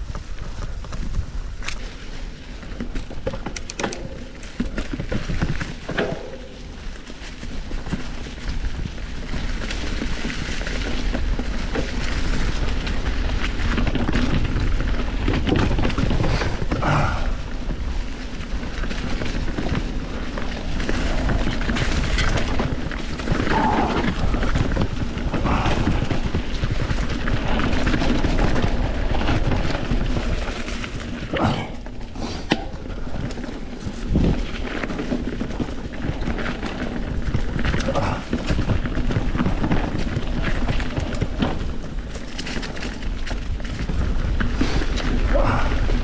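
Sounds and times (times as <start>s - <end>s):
bike tyre and drivetrain noise: 0.0s - 46.0s
wind rumble on microphone: 0.0s - 46.0s
bike frame knocks and rattles: 2.6s - 17.2s.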